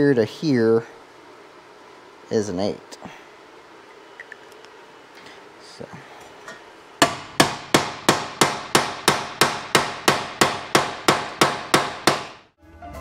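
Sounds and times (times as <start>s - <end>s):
hammer beating sheet metal: 7.0s - 12.5s.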